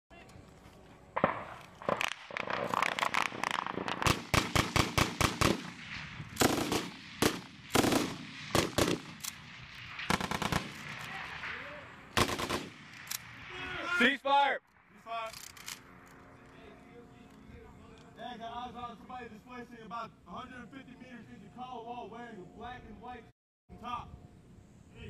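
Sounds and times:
automatic gunfire bursts: 1.2 - 5.8, 6.4 - 9.2, 10.1 - 10.8, 12.2 - 12.8
single rifle shots: 1.2 - 13.5.

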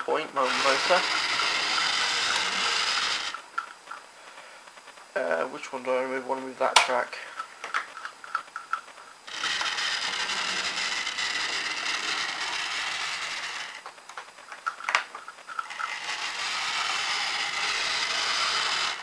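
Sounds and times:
model locomotive motor whirring: 0.0 - 3.7, 9.3 - 13.9, 14.6 - 19.0.

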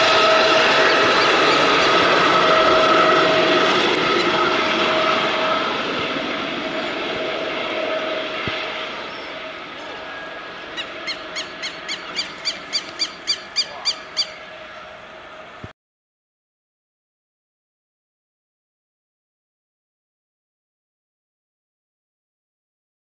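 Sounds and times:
helicopter whine and rotor noise: 0.0 - 15.7.

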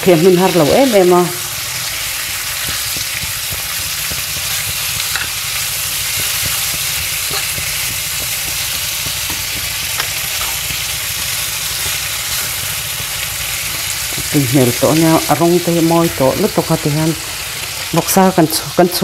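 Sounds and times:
food sizzling in frying pan: 0.0 - 19.0
spatula knocking against pan: 6.0 - 14.2.

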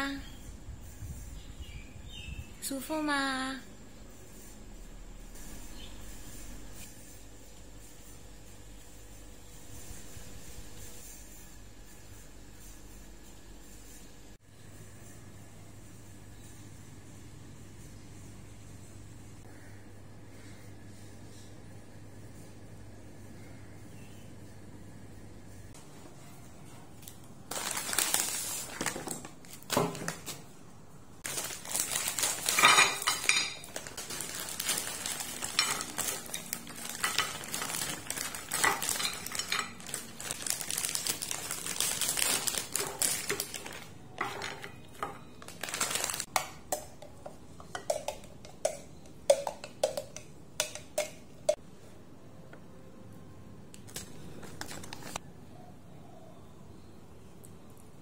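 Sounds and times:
scraping and rustling: 31.2 - 46.3
dishes clinking: 32.5 - 33.7.

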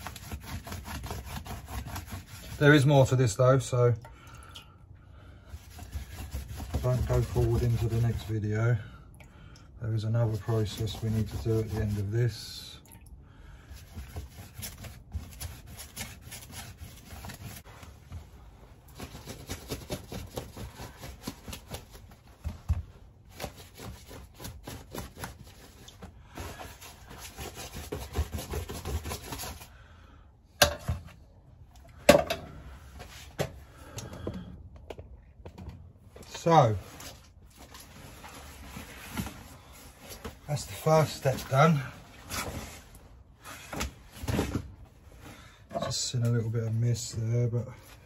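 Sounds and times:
paintbrush scrubbing fabric: 0.0 - 3.1, 5.6 - 8.5, 10.2 - 12.6.

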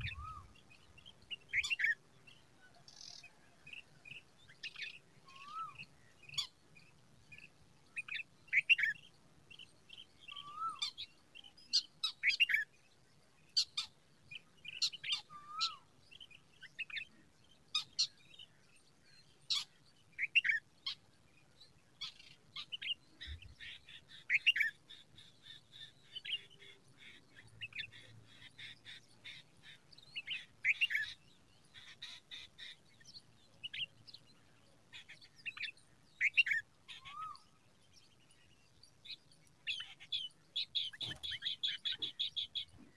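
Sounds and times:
small birds chirping: 0.0 - 42.9.

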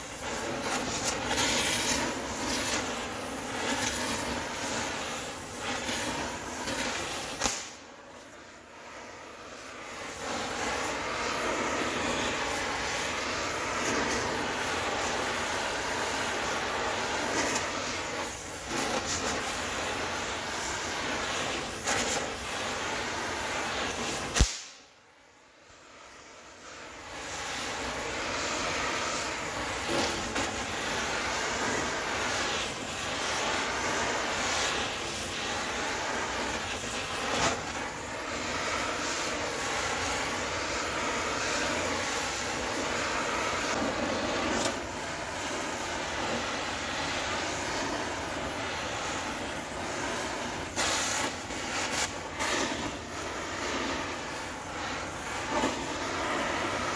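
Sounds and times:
gas torch flame hissing: 0.0 - 56.9
sharp pop: 7.3 - 7.8, 24.3 - 25.0.

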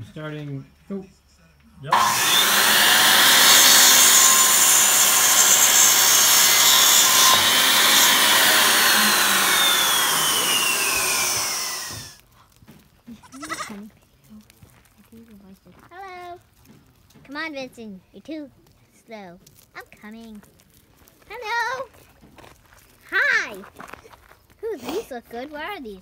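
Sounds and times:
loud harsh hissing: 1.9 - 12.2.

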